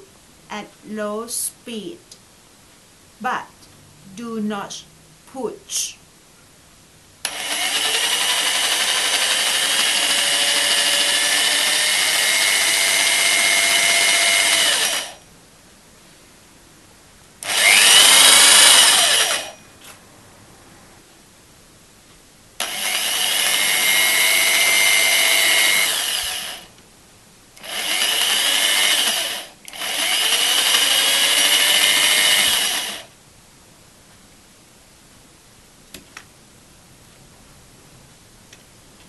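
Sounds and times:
electric drill driving nuts: 7.2s - 15.2s, 17.4s - 19.6s, 22.6s - 26.7s, 27.6s - 33.1s.

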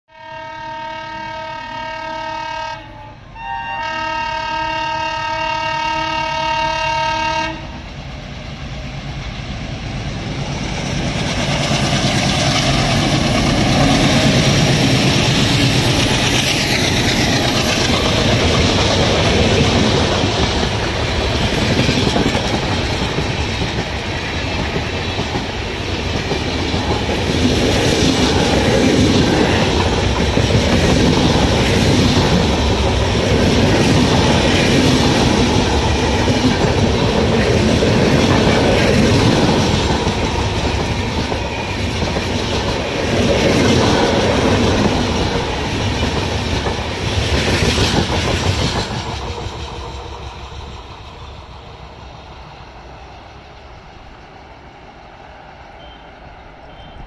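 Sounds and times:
locomotive horn blasts: 0.1s - 7.8s
diesel locomotive engines passing: 0.1s - 57.0s
train wheels rumbling on rails: 3.8s - 57.0s.

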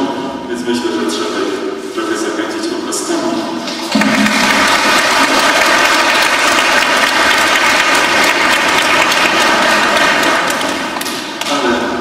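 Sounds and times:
audience applauding: 3.8s - 11.6s.

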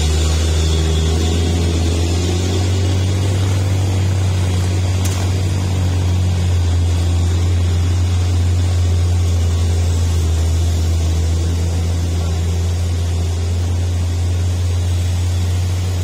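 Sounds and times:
passing motorcycles and cars: 0.0s - 6.2s
diesel engines labouring: 0.0s - 16.0s.

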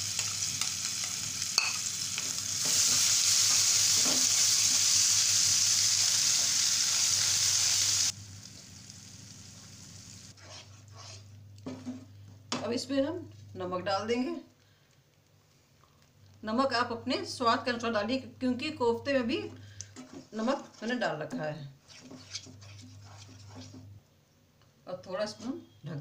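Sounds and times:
paste sizzling in hot oil: 0.0s - 11.3s
spatula stirring in a pan: 10.4s - 12.1s, 19.8s - 24.0s.

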